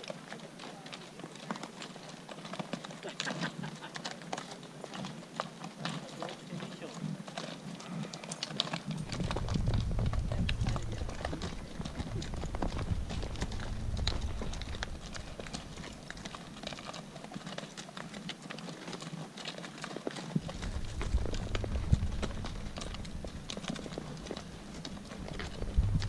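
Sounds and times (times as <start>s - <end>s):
hooves clip-clopping on stones: 0.0s - 26.0s
low microphone rumble: 9.0s - 16.7s, 20.4s - 26.0s.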